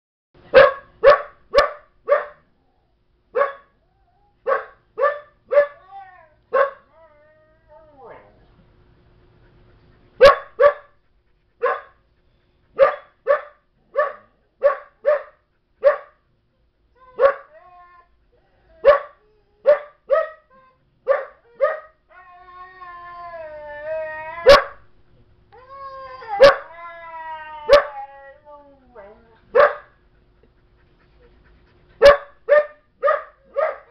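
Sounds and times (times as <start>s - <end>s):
dog barking: 0.5s - 2.4s, 3.4s - 3.7s, 4.5s - 5.8s, 6.5s - 6.9s, 10.2s - 10.9s, 11.6s - 12.0s, 12.8s - 16.2s, 17.2s - 17.5s, 18.8s - 20.4s, 21.1s - 21.9s, 24.4s - 24.8s, 26.4s - 26.7s, 27.7s - 28.0s, 29.6s - 29.9s, 32.0s - 33.9s
dog whining: 5.5s - 8.5s, 16.9s - 19.8s, 20.5s - 24.9s, 25.6s - 29.8s
husky howling: 21.6s - 24.8s, 25.6s - 29.3s.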